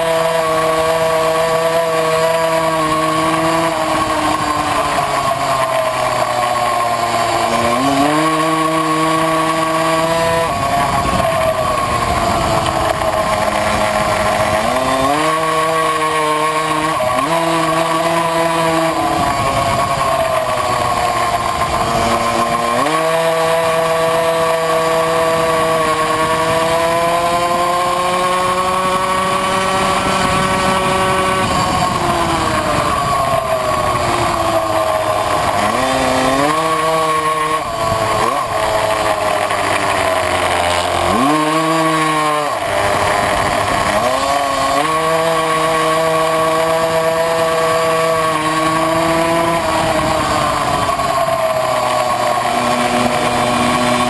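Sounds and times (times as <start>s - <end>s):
two-stroke moped engine racing: 0.0s - 54.0s.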